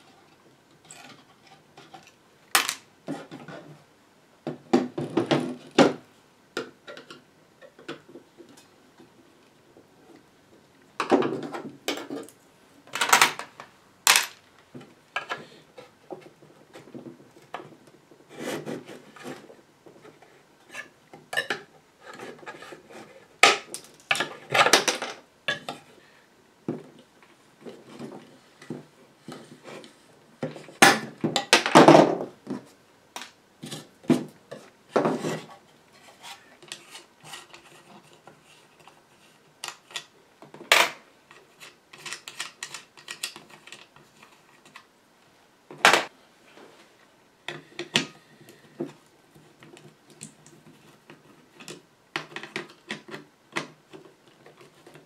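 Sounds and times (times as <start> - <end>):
wooden cabinet parts clinking and knocking: 4.5 - 6.0, 11.0 - 12.3.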